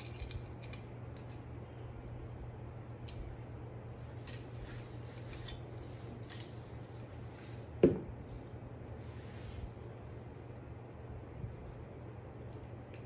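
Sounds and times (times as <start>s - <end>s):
metal parts clicking and clinking: 0.0s - 1.4s, 4.2s - 5.6s, 6.2s - 6.6s
steady low hum: 0.0s - 13.0s.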